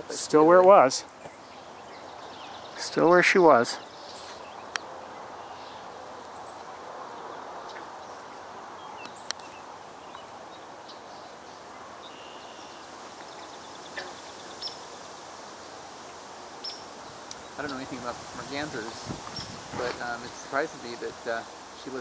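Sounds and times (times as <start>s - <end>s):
steady background hiss: 0.0s - 22.0s
faint bird calls: 1.2s - 15.3s.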